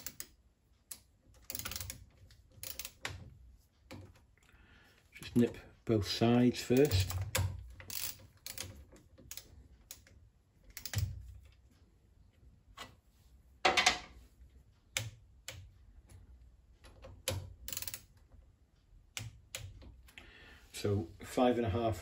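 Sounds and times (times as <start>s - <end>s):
metallic clicks of hand tools: 0.9s - 2.0s, 2.6s - 3.2s, 16.9s - 18.1s.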